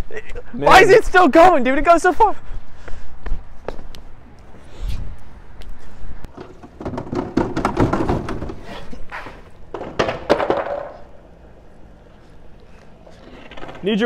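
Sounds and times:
loud clatter: 6.3s - 8.6s
quick knocks and thuds: 6.3s - 8.7s.

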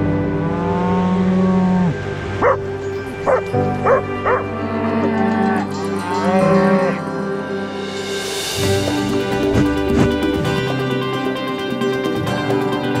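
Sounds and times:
background music: 0.0s - 13.0s
cattle mooing: 0.3s - 2.7s, 3.3s - 7.0s
small dog barking: 2.4s - 2.6s, 3.3s - 4.4s.

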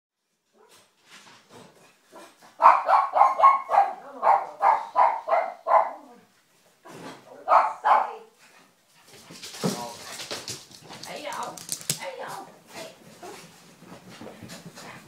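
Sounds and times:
dog barking: 2.1s - 6.2s, 7.4s - 8.3s.

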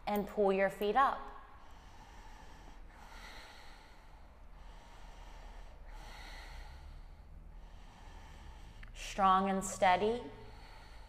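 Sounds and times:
woman breathing through throat: 1.5s - 9.0s, 10.4s - 11.0s.

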